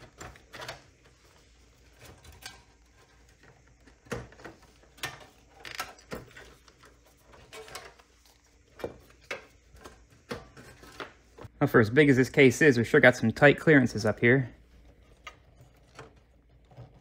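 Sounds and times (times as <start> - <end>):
cables rustling: 0.0 - 11.6.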